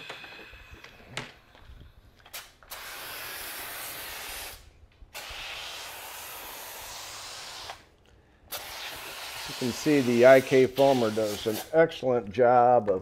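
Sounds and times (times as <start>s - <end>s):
foam sprayer hissing: 2.3s - 4.6s, 5.2s - 7.8s, 8.5s - 11.8s.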